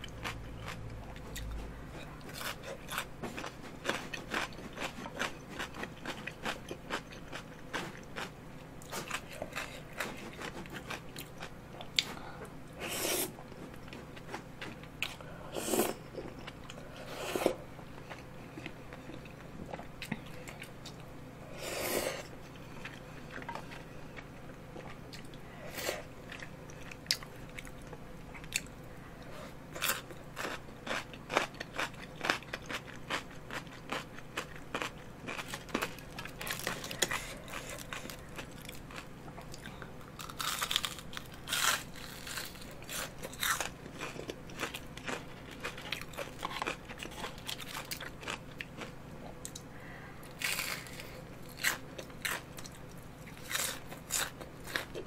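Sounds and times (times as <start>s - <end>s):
crunchy chewing and biting: 0.0s - 12.3s, 29.7s - 49.7s, 50.3s - 55.0s.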